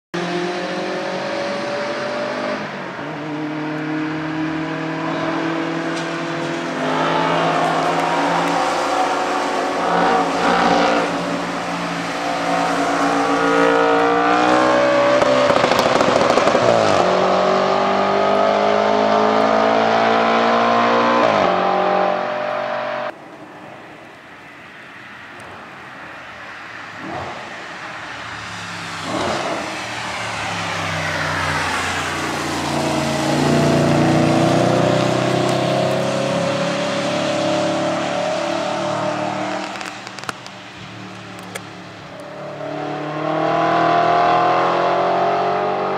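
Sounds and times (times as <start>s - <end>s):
car engine revving: 0.2s - 23.1s, 27.0s - 45.9s.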